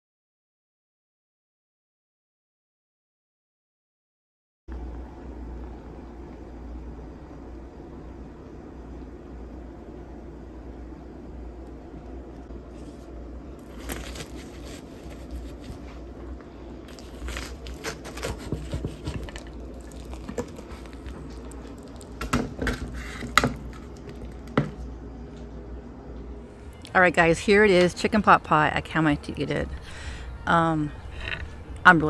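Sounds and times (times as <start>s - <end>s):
pie crust crackling and crumbling: 12.7s - 24.9s
crunches and scrapes: 12.8s - 16.1s.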